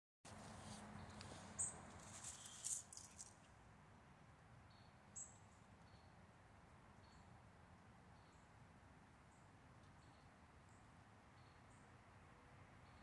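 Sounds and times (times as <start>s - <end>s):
rustle of dry leaves: 0.3s - 3.7s.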